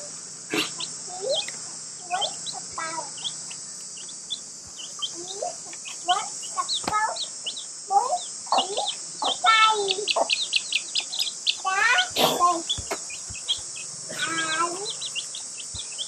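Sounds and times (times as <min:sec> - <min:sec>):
birds chirping: 0:00.0 - 0:16.0
steady high-pitched hiss: 0:00.0 - 0:16.0.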